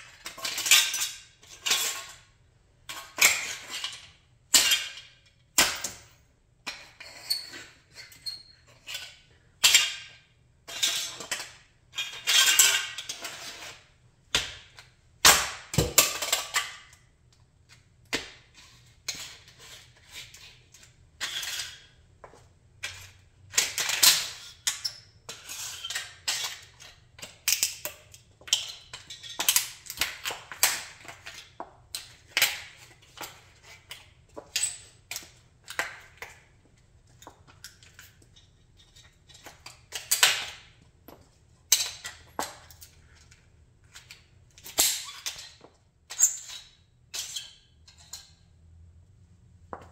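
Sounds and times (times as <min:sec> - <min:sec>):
heels clacking on concrete: 0:49.6 - 0:49.9.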